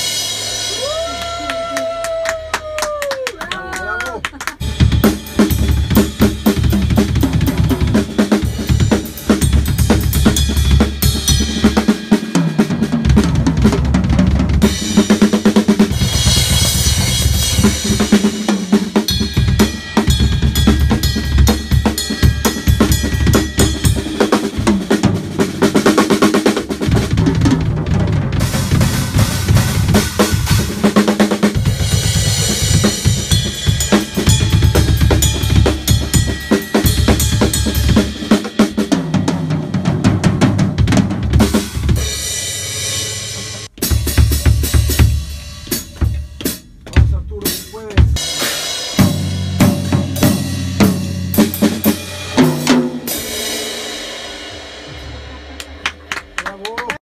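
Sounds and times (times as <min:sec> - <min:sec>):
drum kit groove: 0:00.0 - 0:01.7, 0:04.4 - 0:57.0
cymbals ringing: 0:16.6 - 0:25.1, 0:32.1 - 0:39.0.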